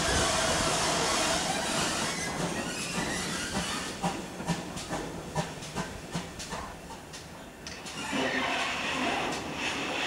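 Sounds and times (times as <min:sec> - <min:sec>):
steam locomotive hissing: 0:00.0 - 0:06.8
steam locomotive exhaust beats: 0:00.0 - 0:07.3.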